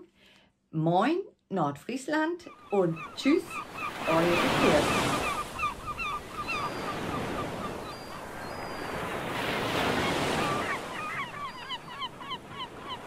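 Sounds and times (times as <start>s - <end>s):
surf washing onto shore: 6.8s - 11.0s.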